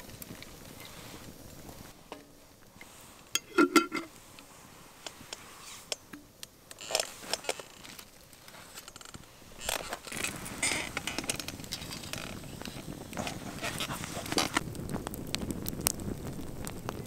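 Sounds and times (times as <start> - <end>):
campfire crackling: 0.0 - 17.0
metal pot knocks and clinks: 3.4 - 4.1.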